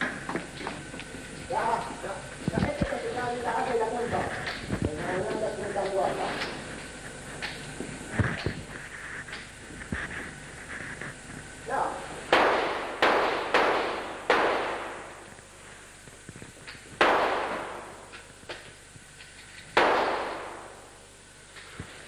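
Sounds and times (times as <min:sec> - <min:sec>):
gunshots echoing indoors: 0:11.8 - 0:15.4, 0:17.0 - 0:18.2, 0:19.7 - 0:21.0.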